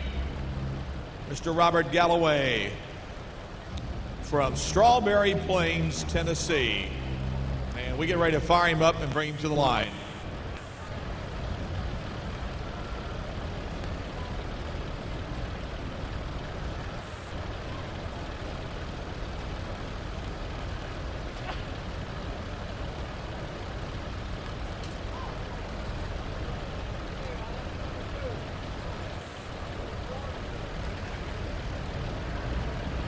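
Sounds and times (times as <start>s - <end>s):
tractor engines idling: 0.0s - 33.0s.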